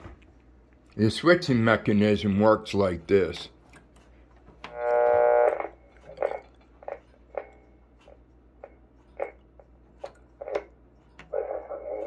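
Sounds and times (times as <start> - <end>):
radio held tone: 4.7 - 7.6, 11.3 - 12.0.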